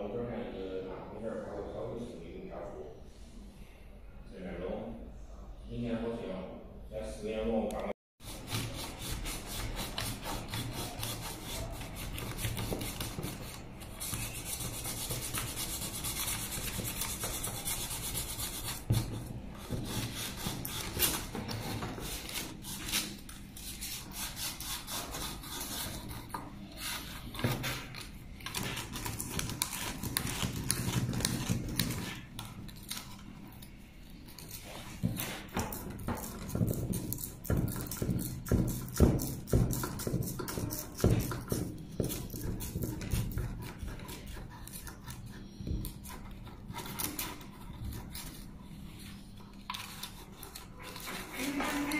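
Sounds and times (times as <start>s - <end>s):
sandpaper rubbing on plastic: 8.2s - 27.4s, 49.8s - 51.9s.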